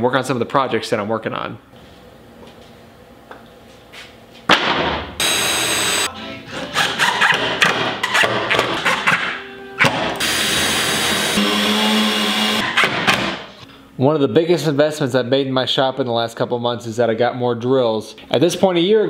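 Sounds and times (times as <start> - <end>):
cordless drill drilling into plywood: 5.2 - 6.1, 10.2 - 12.6.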